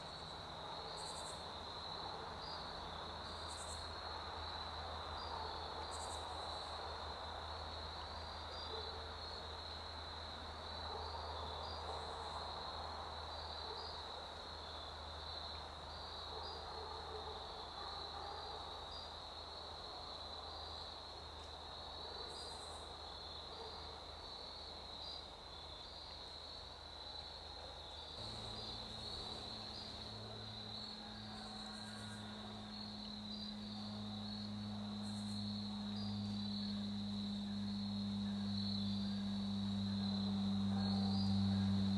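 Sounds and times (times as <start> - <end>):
crickets trilling: 0.0 - 16.7, 17.4 - 41.9
low steady hum: 28.2 - 41.9.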